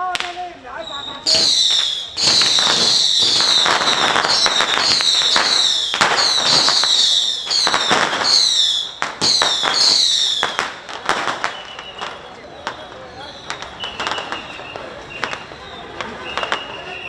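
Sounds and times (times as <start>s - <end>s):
firecrackers crackling and popping: 0.0s - 17.0s
descending high-pitched whistles: 0.8s - 10.6s.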